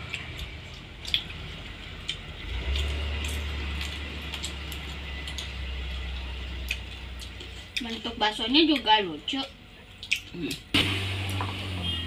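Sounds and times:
eating sounds: 0.0s - 10.7s.

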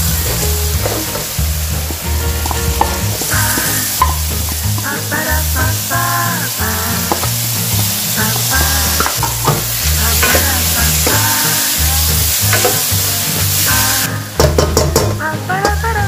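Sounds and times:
wooden spatula stirring: 0.0s - 5.2s
background music: 0.0s - 16.0s
vegetables sizzling in a wok: 0.0s - 16.0s.

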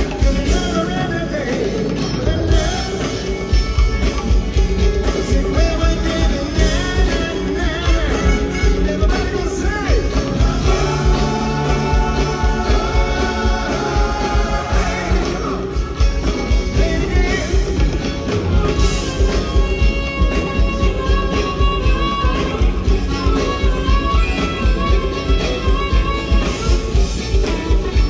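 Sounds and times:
man singing lead vocal: 0.0s - 3.5s, 5.0s - 18.0s
drum kit: 0.0s - 28.0s
electric guitars: 0.0s - 28.0s.

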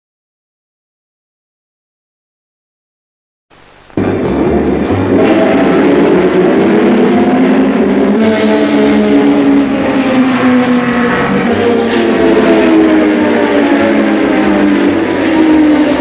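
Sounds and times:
racing car engines: 4.0s - 16.0s.

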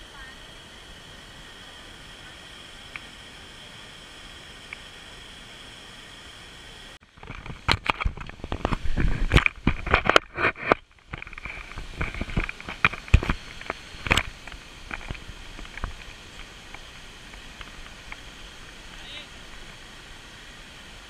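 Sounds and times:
steady rushing hiss: 0.0s - 21.0s
camera brushing against bushes: 7.2s - 19.8s.

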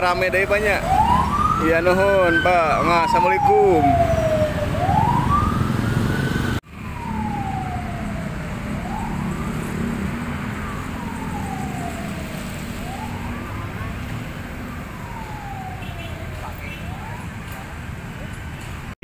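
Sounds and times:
wailing siren: 0.0s - 17.8s.

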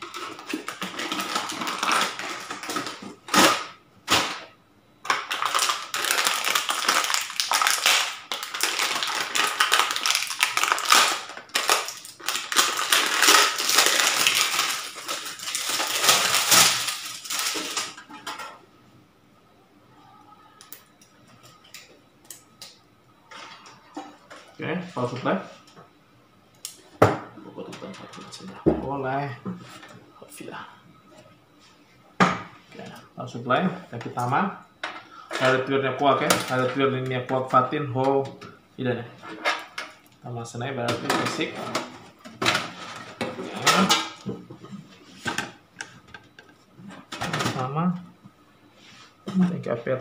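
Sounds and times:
packaging crinkling and rustling: 0.0s - 4.3s, 5.1s - 18.0s.

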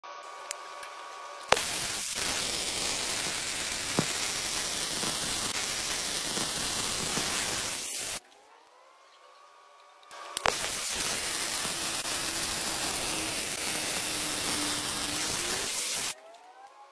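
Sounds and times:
welding arc crackling: 1.4s - 8.2s, 10.4s - 16.2s
arc striking snap: 1.5s - 7.7s.

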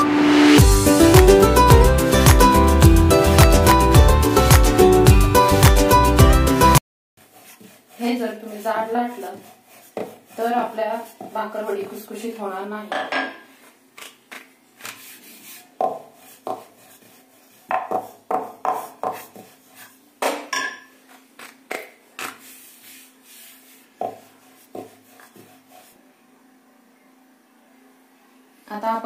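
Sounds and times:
rolling pin rolling dough: 7.2s - 12.4s, 13.5s - 20.1s, 20.9s - 26.1s.

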